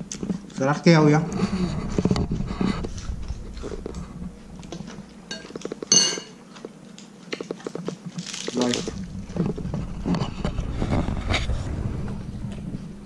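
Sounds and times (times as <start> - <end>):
person chewing: 2.8 - 10.1
ringing clink: 5.3 - 6.3.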